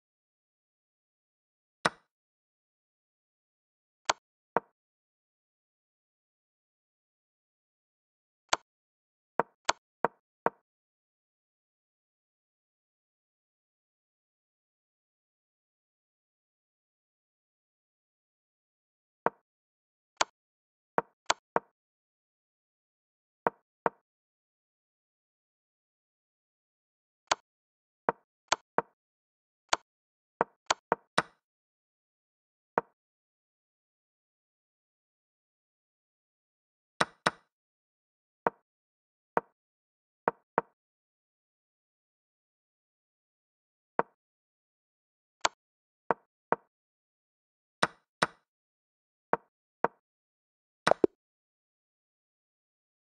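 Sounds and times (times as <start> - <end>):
digital chess piece clicks: 50.9 - 51.1.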